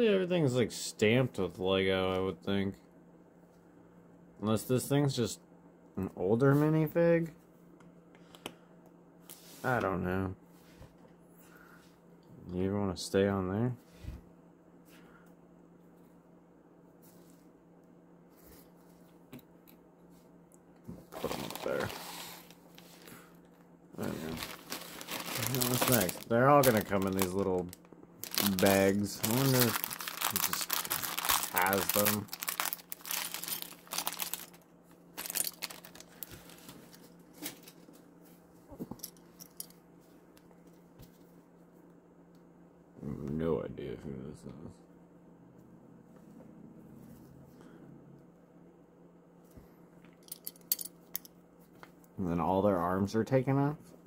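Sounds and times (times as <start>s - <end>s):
packet rustling: 21.0s - 23.2s, 24.0s - 34.6s, 35.2s - 37.8s
plastic bag crinkling: 21.1s - 23.1s, 24.0s - 37.8s.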